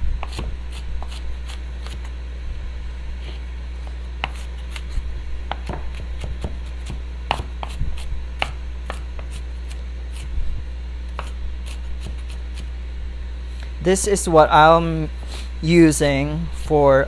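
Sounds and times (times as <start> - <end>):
steady low hum: 0.0 - 17.0
knife chopping on wooden board: 0.2 - 2.0, 3.8 - 4.9, 5.5 - 10.3, 11.2 - 12.7.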